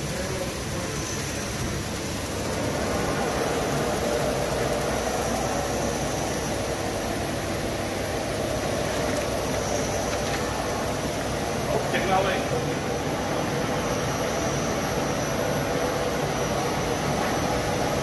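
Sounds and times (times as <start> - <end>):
machine running: 0.0 - 18.0.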